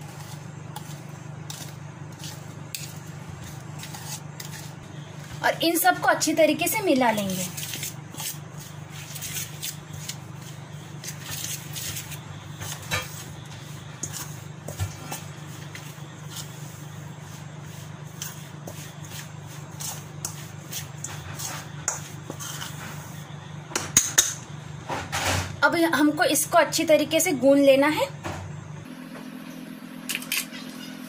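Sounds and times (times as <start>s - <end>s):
hand rubbing and scraping in bowl: 0.0s - 5.5s, 7.0s - 23.3s.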